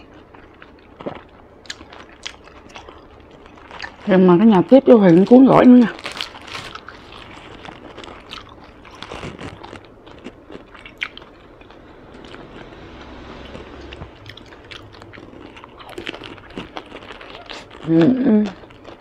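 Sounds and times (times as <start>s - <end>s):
wet chewing mouth sounds: 6.7s - 11.8s, 14.2s - 19.0s.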